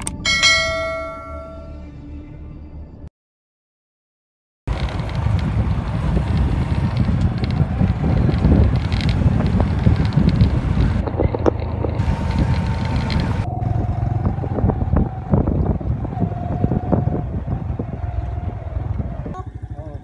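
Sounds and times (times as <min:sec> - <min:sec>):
wind buffeting microphone: 0:04.7 - 0:20.0.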